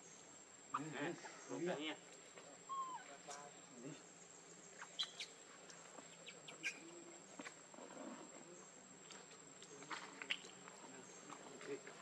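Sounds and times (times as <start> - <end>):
faint chirps and clicks: 4.4 - 7.6, 9.0 - 12.0.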